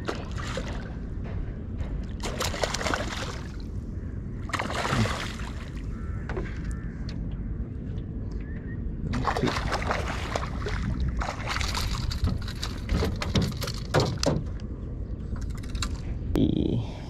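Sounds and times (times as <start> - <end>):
water splashing: 0.0 - 1.0, 2.2 - 3.7, 4.5 - 5.8, 9.1 - 13.8
steady low rumble: 0.0 - 17.0.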